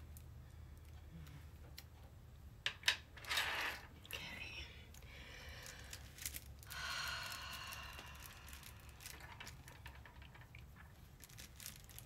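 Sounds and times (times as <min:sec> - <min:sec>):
low steady hum: 0:00.0 - 0:12.0
canvas and plastic film rustling: 0:05.6 - 0:12.0.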